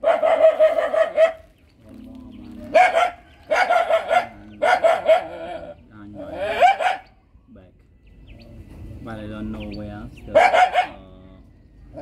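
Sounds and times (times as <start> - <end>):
animal high-pitched calls: 0.0 - 1.6, 2.5 - 7.4.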